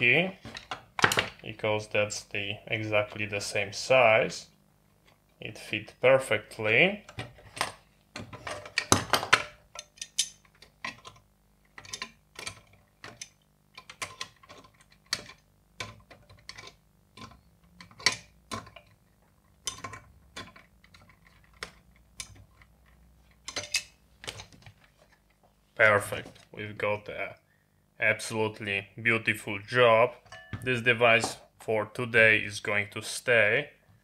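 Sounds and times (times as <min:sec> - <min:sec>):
metal screw clicking and scraping: 0:09.7 - 0:19.0, 0:19.6 - 0:24.5.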